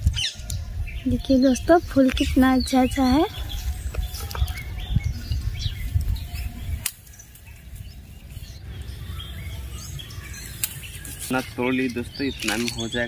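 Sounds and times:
wind rumble on microphone: 0.0s - 9.7s
small birds chirping: 0.0s - 13.0s.

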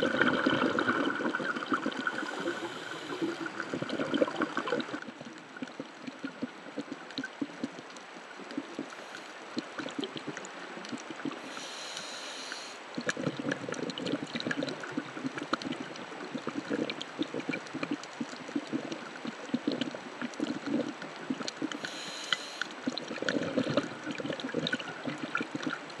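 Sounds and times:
bubbling exhaled air: 0.0s - 7.6s, 8.4s - 26.0s
fine crackle of underwater clicks: 0.0s - 26.0s
diver inhaling through regulator: 2.1s - 3.6s, 11.4s - 12.8s, 21.8s - 22.7s.

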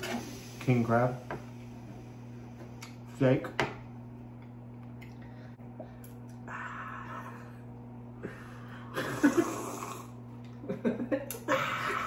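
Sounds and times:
steady low hum: 0.0s - 12.0s
person breathing out: 6.4s - 8.9s.

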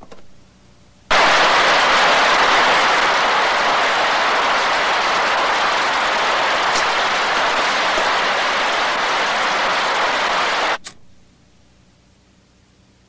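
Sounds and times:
heavy rain hissing: 1.1s - 10.8s.

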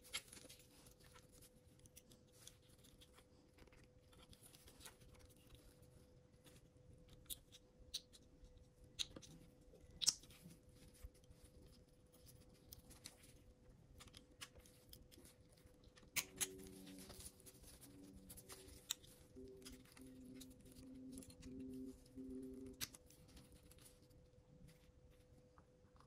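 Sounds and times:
faint electrical hum: 0.0s - 26.0s.

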